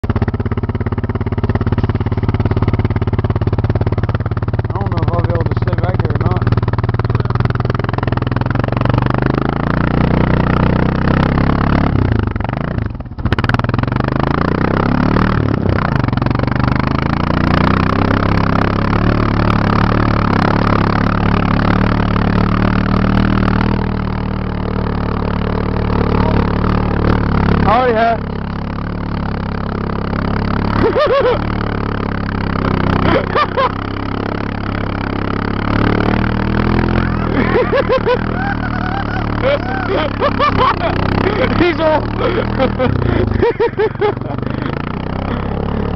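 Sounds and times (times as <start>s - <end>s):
atv engine running hard: 0.0s - 45.9s
person whooping: 38.0s - 40.4s.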